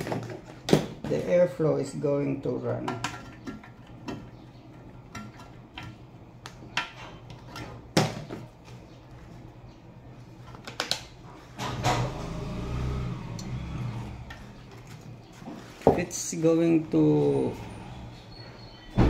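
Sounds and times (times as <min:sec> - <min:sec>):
fan motor humming: 0:11.2 - 0:19.0.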